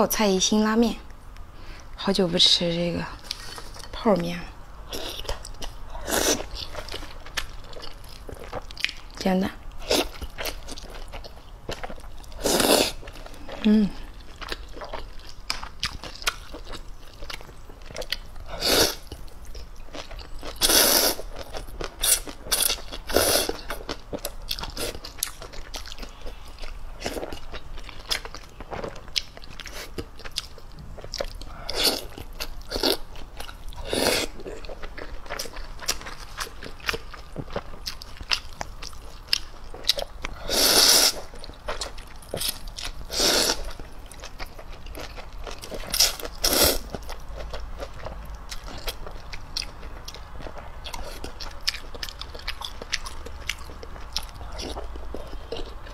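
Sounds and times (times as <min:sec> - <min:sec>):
wet chewing: 0:04.9 - 0:55.9
loud noodle slurps: 0:40.5 - 0:41.2.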